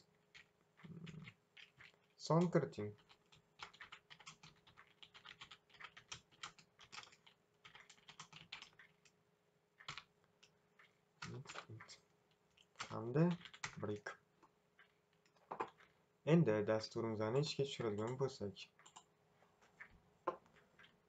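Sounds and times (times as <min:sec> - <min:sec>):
typing on keyboard: 0:00.3 - 0:09.1, 0:09.8 - 0:12.0, 0:12.6 - 0:14.0, 0:14.8 - 0:15.9, 0:17.8 - 0:19.1.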